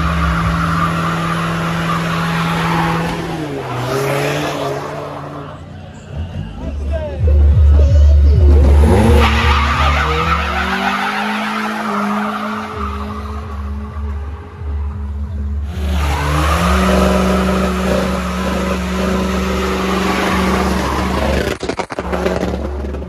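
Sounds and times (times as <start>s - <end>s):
car engine revving: 0.0s - 23.0s
tyres screeching: 15.6s - 23.0s.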